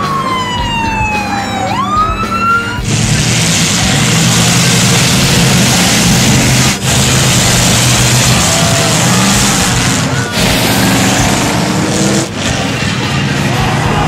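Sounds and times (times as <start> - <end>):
siren-like wailing tone: 0.0 - 2.8, 7.6 - 12.8
car engines driving past: 2.8 - 14.0.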